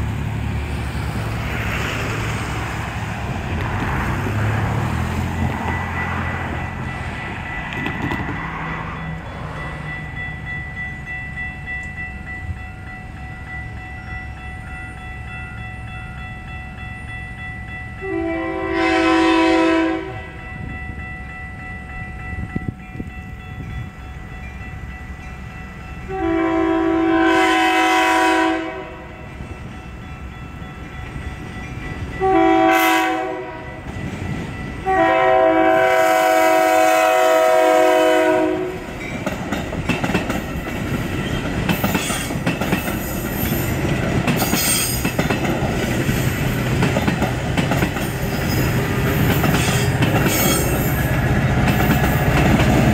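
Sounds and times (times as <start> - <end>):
crossing signal bell ringing: 5.4 - 27.8, 28.7 - 35.6, 47.7 - 52.9
train horn blasts: 18.0 - 20.5, 26.0 - 29.3, 32.1 - 33.9, 34.8 - 38.9.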